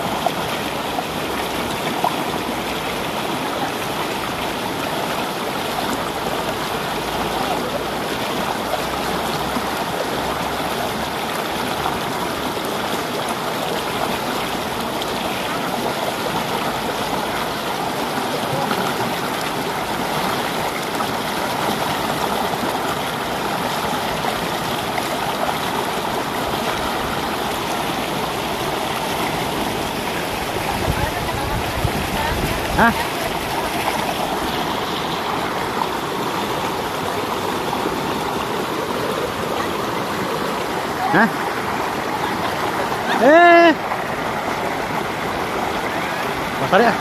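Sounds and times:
river rushing over rocks: 0:00.0 - 0:47.0.

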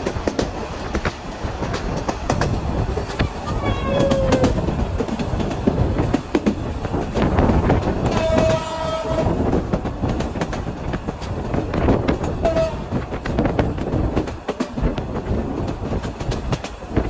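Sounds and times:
train wheels clicking on rails: 0:00.0 - 0:17.0
locomotive horn: 0:08.0 - 0:09.5, 0:12.4 - 0:13.0.

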